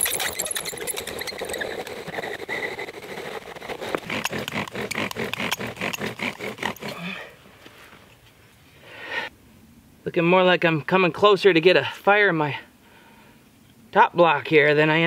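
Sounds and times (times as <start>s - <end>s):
bow drill spindle squeaking: 0.0s - 6.9s.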